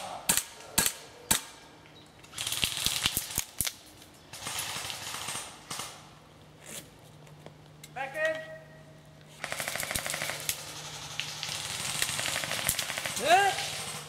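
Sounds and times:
rapid automatic airsoft fire: 0:09.4 - 0:14.0.

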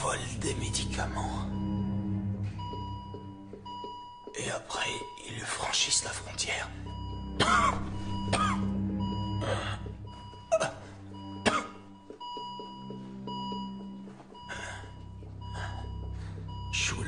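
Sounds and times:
heart monitor beeping: 0:00.0 - 0:17.0
man gasping or coughing: 0:07.4 - 0:08.7, 0:10.6 - 0:11.9.

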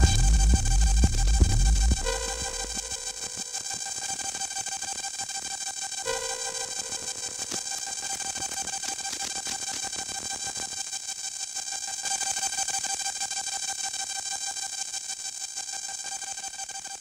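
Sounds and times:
noisy percussive hits: 0:00.0 - 0:03.1
synthesizer tone: 0:00.0 - 0:03.1.

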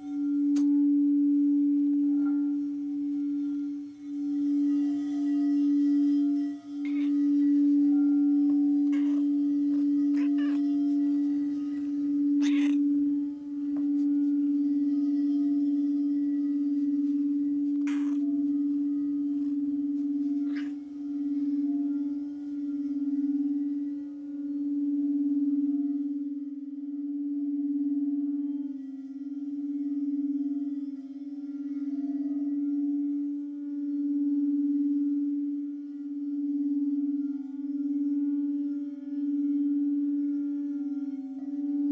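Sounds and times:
singing bowl low tone: 0:00.0 - 0:41.9.

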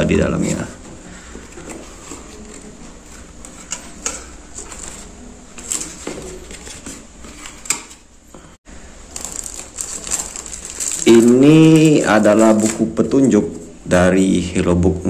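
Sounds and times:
cardboard and paper rustling: 0:01.2 - 0:08.0, 0:09.1 - 0:13.0.

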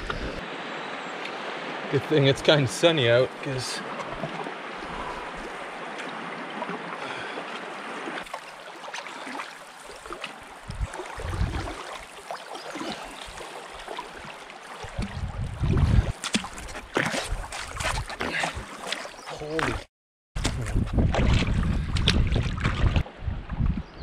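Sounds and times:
river current rushing: 0:00.0 - 0:15.0.

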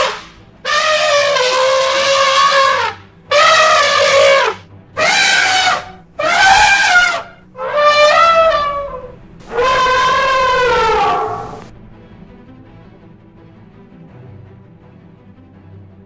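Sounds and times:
elephant trumpeting: 0:00.0 - 0:11.7.

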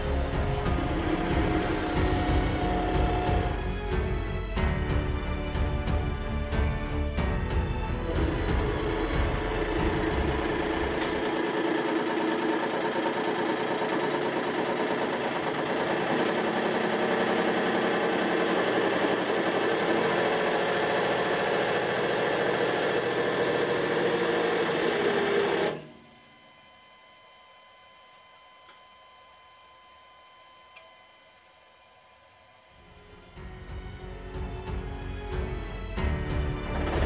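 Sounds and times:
hydraulic pump running: 0:00.0 - 0:04.4, 0:07.6 - 0:26.0, 0:36.4 - 0:37.0.

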